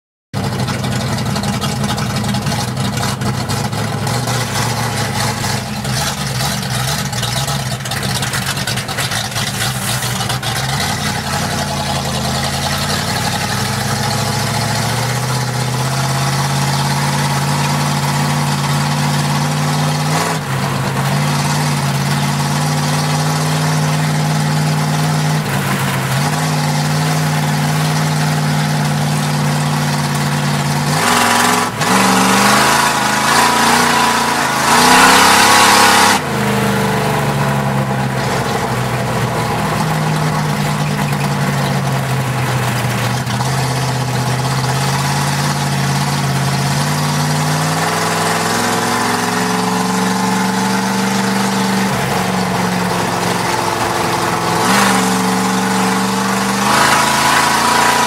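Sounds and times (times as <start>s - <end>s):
race car engine running hard: 0.3s - 58.0s.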